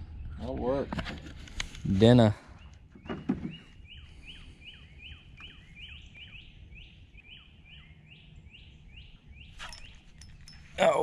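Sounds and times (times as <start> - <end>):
faint outdoor background noise: 0.0 - 11.0
songbird singing slurred notes: 2.5 - 11.0.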